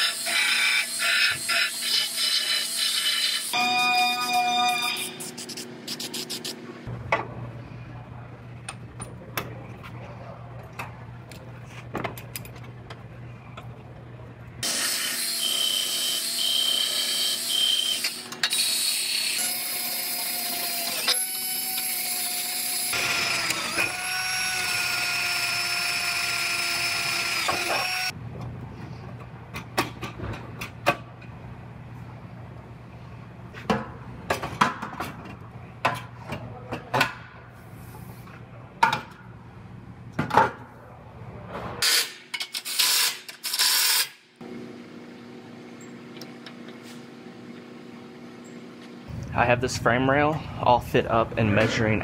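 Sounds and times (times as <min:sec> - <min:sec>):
power tool whining: 0:14.6 - 0:28.1.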